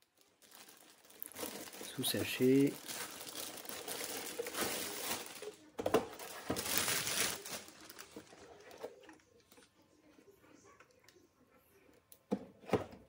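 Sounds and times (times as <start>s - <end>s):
plastic bag rustling: 0.0s - 9.6s.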